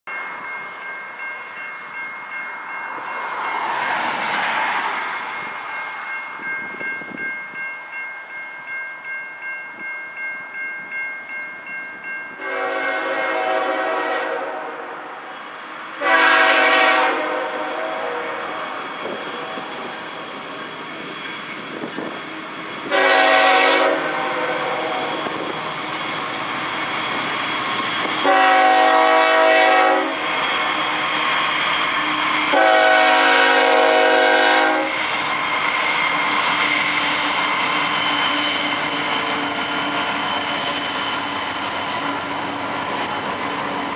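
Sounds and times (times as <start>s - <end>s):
car passing on highway: 2.9s - 6.4s
locomotive air horn blasts: 12.4s - 15.3s, 16.0s - 19.9s, 22.9s - 25.4s, 28.2s - 30.5s, 32.5s - 35.0s.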